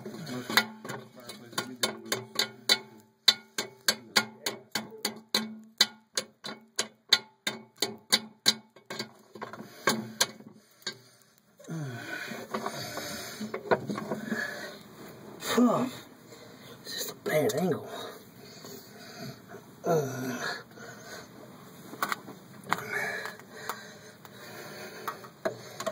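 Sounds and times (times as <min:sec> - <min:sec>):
rough metal scraping: 0:00.0 - 0:04.2
metal knocks: 0:00.0 - 0:10.4.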